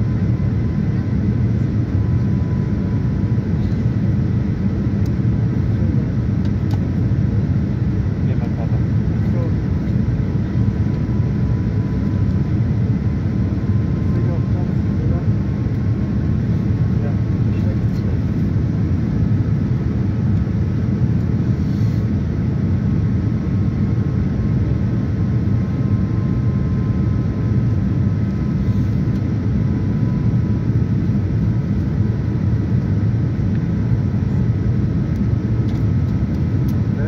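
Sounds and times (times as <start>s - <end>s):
airliner cabin airflow and engine noise: 0.0s - 37.0s.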